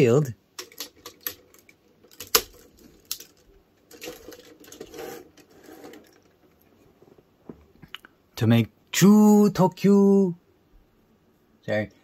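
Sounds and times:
plastic toy parts clicking: 0.6 - 6.3
plastic scraping and rattling: 0.6 - 6.6.

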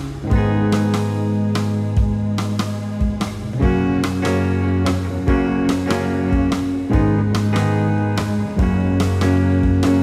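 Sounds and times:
guitar-led music with drums: 0.0 - 10.0.

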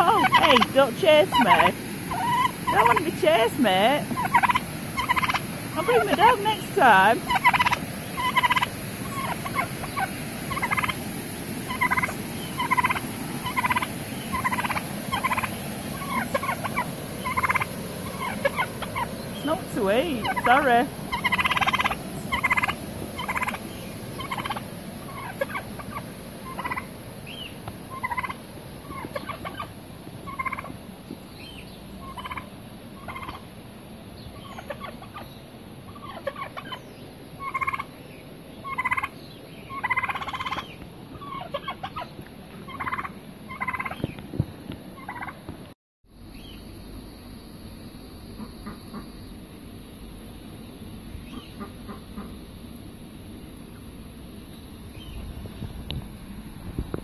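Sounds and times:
turkey gobbling: 0.0 - 11.0, 11.7 - 29.7, 30.3 - 30.8, 32.0 - 33.5, 34.4 - 35.3, 35.9 - 36.8, 37.4 - 37.9, 38.6 - 39.1, 39.7 - 44.1, 45.0 - 45.4.

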